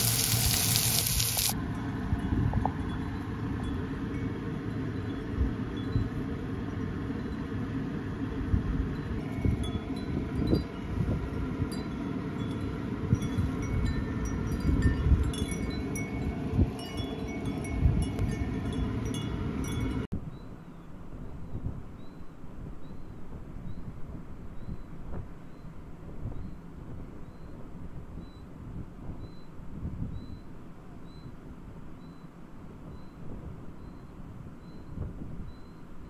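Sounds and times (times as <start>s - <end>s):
wind chimes tinkling: 0.0s - 6.2s, 9.0s - 20.1s.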